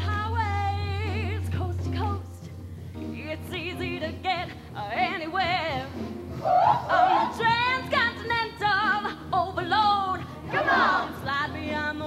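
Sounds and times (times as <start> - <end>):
backing band: 0.0 - 12.0
woman singing with vibrato: 6.6 - 12.0.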